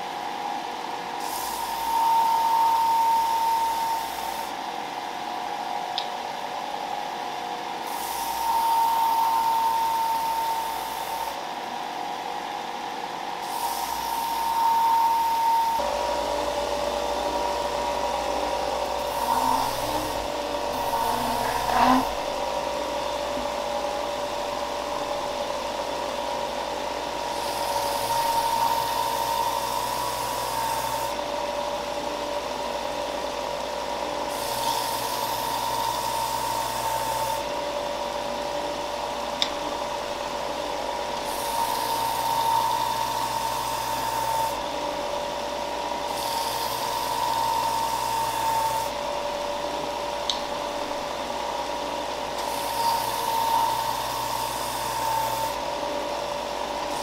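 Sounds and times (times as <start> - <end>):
hiss of sanding wood: 7.8 - 9.8, 13.4 - 15.4, 19.0 - 22.4
belt sander motor hum: 13.8 - 31.7.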